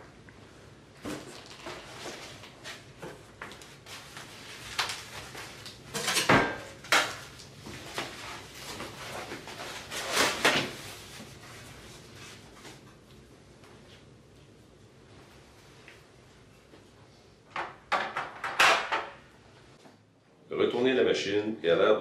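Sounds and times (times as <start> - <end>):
foam wrap rustling: 1.1 - 6.0, 6.7 - 12.8.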